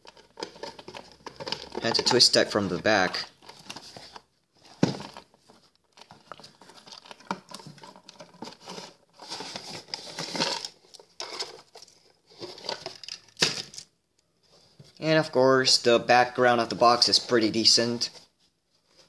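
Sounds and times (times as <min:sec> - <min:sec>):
cardboard and twist ties rustling: 0:00.0 - 0:02.5, 0:03.2 - 0:15.0.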